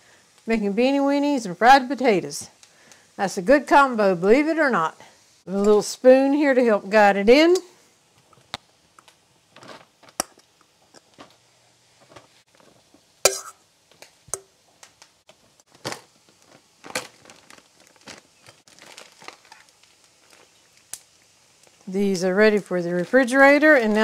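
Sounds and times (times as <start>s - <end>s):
plastic bag crinkling: 9.5s - 10.2s, 15.7s - 24.0s.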